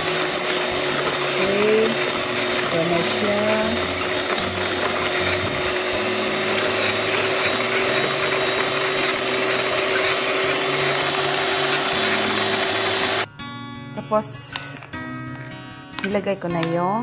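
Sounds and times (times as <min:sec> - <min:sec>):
electric hand mixer whirring: 0:00.0 - 0:13.3.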